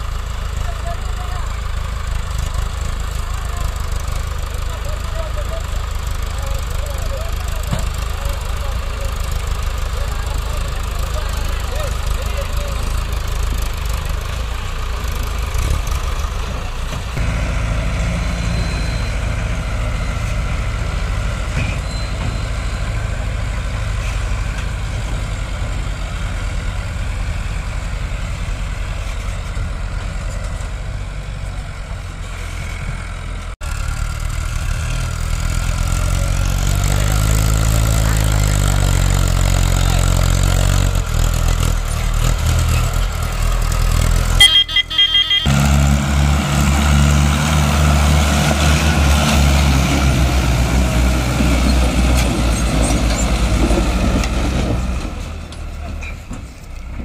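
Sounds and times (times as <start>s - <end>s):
tractor diesel engines under load: 0.0s - 57.0s
short high-pitched tone: 44.4s - 45.6s.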